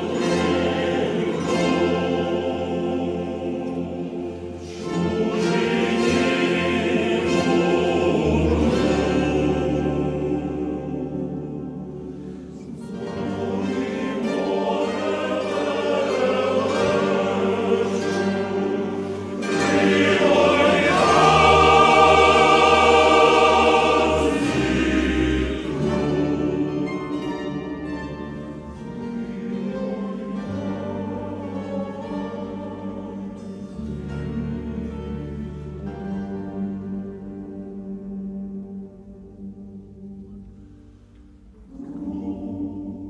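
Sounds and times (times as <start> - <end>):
choir singing sustained chords: 0.0 - 43.0.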